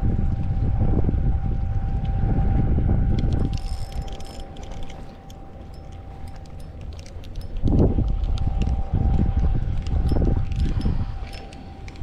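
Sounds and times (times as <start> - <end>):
wind buffeting microphone: 0.0 - 12.0
fishing reel cranking: 3.2 - 12.0
reel ticking: 3.2 - 12.0.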